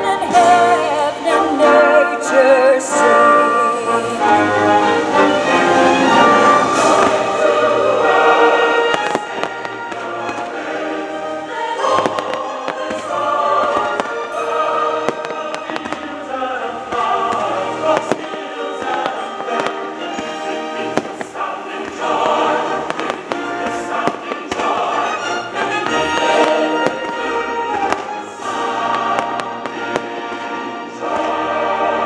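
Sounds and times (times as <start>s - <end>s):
choral music: 0.0s - 32.0s
fireworks popping and crackling: 8.7s - 11.2s, 11.8s - 31.4s.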